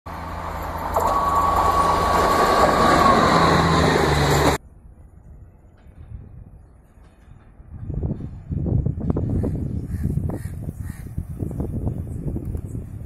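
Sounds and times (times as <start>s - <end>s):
train rumble: 0.1s - 10.5s.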